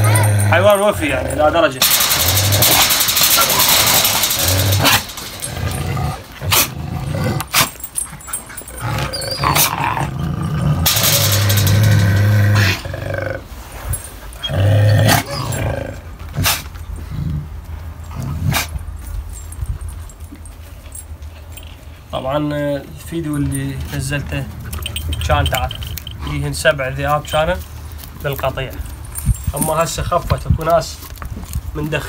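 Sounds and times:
dog and wolf growling and snarling: 0:00.0 - 0:18.8.

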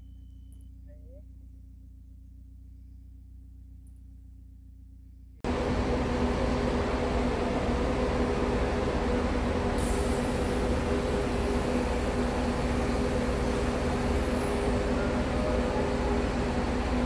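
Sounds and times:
faint high whine: 0:00.0 - 0:08.3
bus engines idling: 0:01.2 - 0:17.0.

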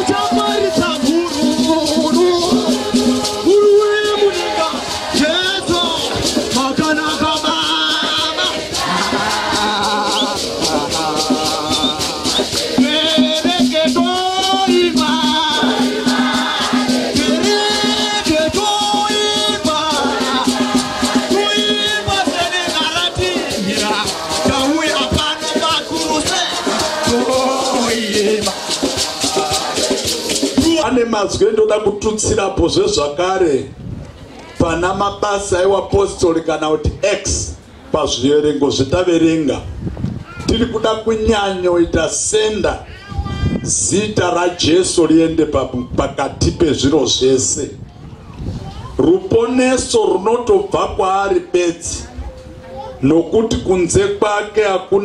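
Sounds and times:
shaken rattle beat: 0:00.0 - 0:31.0
congregation singing gospel song: 0:00.0 - 0:31.5.

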